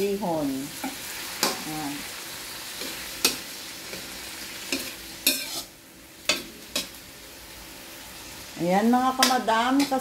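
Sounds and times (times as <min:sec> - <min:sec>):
food sizzling in a wok: 0:00.0 - 0:10.0
spatula scraping food: 0:02.7 - 0:06.9.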